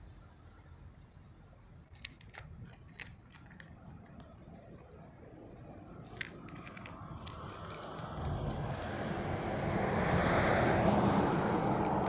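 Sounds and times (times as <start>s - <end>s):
small sharp clicks: 1.9s - 4.9s, 6.0s - 8.6s
vehicle passing on road: 2.0s - 12.0s.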